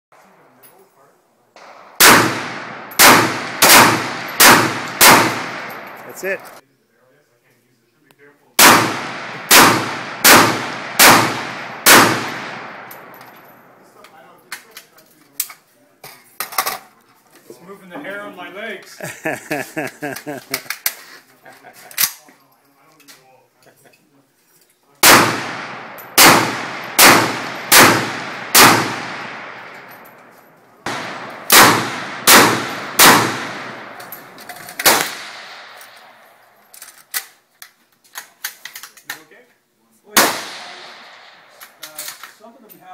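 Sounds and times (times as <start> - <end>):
rifle shots with long echo: 1.6 - 6.5, 8.6 - 13.9, 25.0 - 30.2, 30.8 - 36.6, 40.1 - 41.6.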